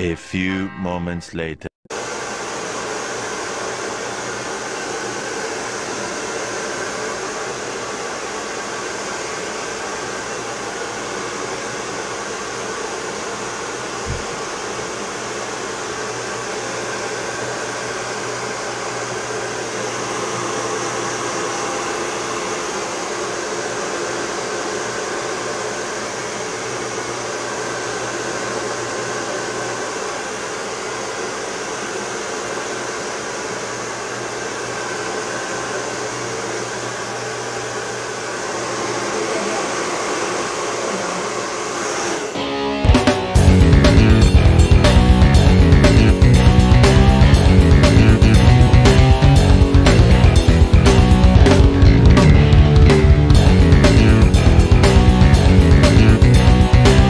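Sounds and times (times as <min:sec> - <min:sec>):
hair dryer running: 0:02.0 - 0:57.0.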